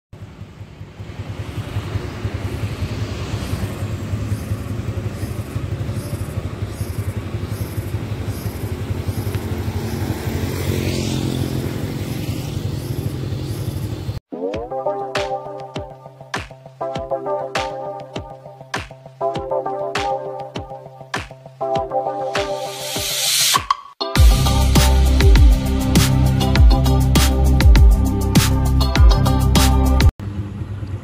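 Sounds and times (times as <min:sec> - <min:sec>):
road traffic rumble: 0:00.2 - 0:14.2, 0:24.2 - 0:31.0.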